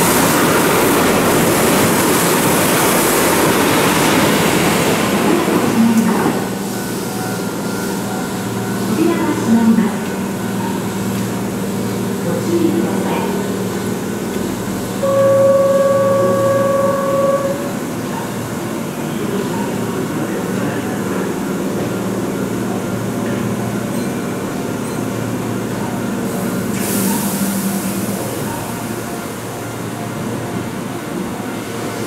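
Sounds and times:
electric train humming: 0:00.0 - 0:32.0
loud single-pitched tone: 0:15.0 - 0:18.4.

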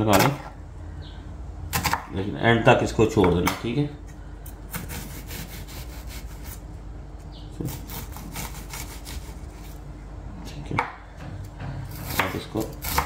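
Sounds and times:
knife slicing onion on board: 0:04.7 - 0:06.6, 0:07.6 - 0:09.8, 0:11.8 - 0:13.0.

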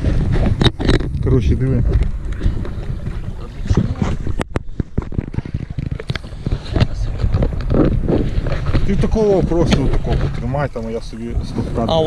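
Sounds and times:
microphone handling knocks: 0:00.0 - 0:10.5
wind rumbling on microphone: 0:00.0 - 0:12.0.

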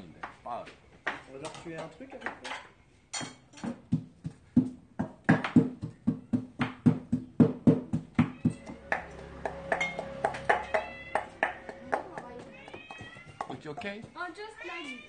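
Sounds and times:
pestle pounding in a mortar: 0:03.6 - 0:14.4.

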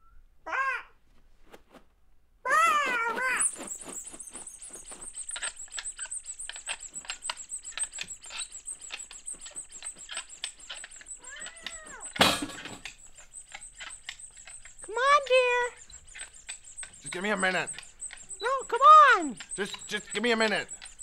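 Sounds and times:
cat-like cry: 0:00.5 - 0:01.0, 0:11.2 - 0:12.6
thin high tone: 0:02.6 - 0:21.0
rapid tapping and clicking: 0:02.7 - 0:21.0.

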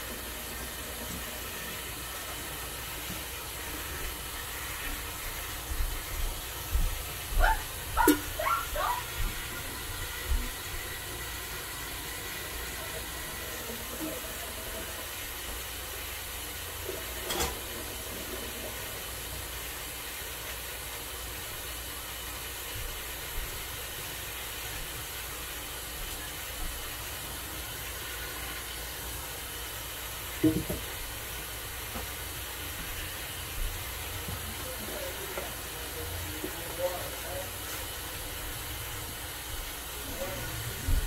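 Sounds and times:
faucet running into sink: 0:00.0 - 0:41.0
knocks at sink: 0:30.4 - 0:30.9.

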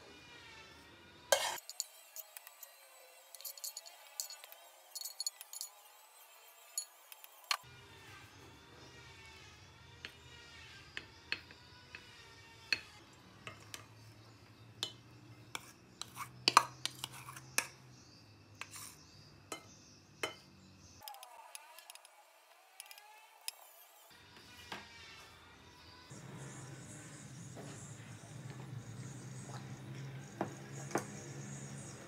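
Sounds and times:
wooden spoon scraping a plate: 0:15.4 - 0:17.8, 0:18.6 - 0:19.6.

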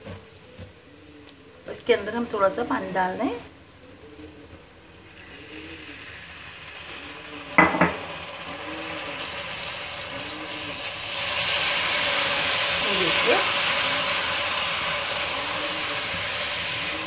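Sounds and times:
onions sizzling in oil: 0:00.0 - 0:17.0
stirring in a pot: 0:08.3 - 0:17.0.

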